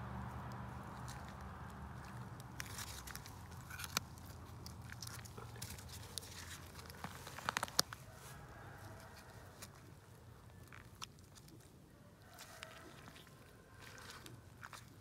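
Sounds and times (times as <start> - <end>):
scissors crunching through ribs: 2.0 - 8.0.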